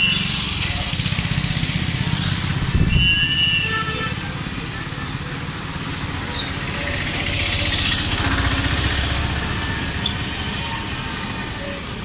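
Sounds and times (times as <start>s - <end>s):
motor vehicle passing: 5.8s - 11.6s.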